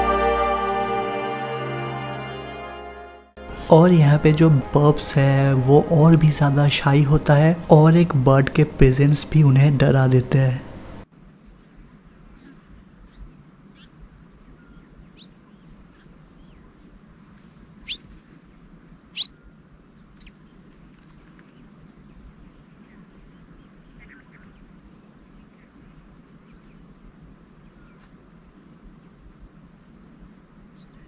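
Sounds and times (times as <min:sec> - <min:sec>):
steady high-pitched buzz: 0:03.4 - 0:15.6, 0:21.6 - 0:31.0
birds chirping and trilling: 0:13.0 - 0:16.8, 0:17.8 - 0:18.1, 0:18.8 - 0:24.7.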